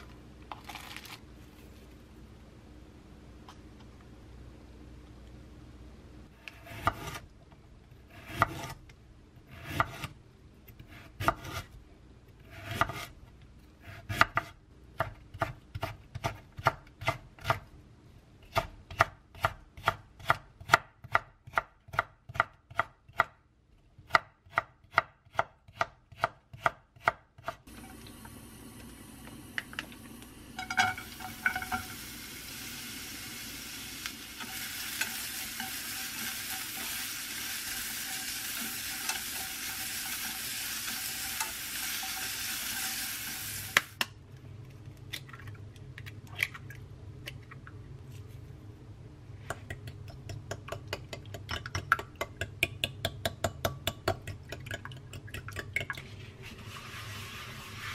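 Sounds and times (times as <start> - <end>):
food sizzling in a frying pan: 27.7 - 44.0.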